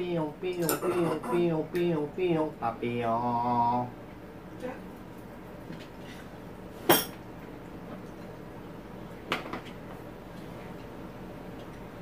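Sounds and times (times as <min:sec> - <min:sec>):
tableware clinking: 0:06.9 - 0:07.2.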